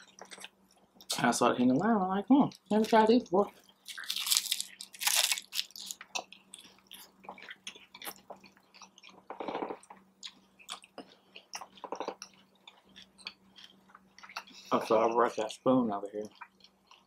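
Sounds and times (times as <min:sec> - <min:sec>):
crunchy taco shell chewing: 0:03.8 - 0:14.6.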